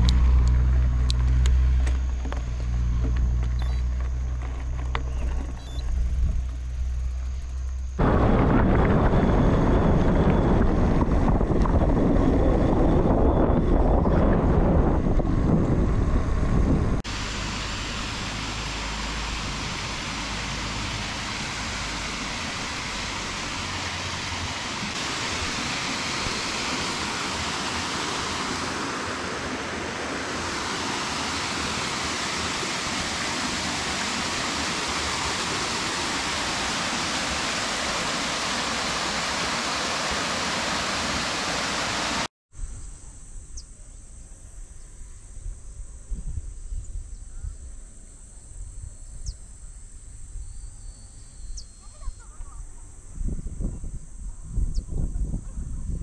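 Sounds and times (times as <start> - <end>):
wind buffeting microphone: 8.0 - 17.0, 53.0 - 56.0
running water rushing: 17.0 - 42.3.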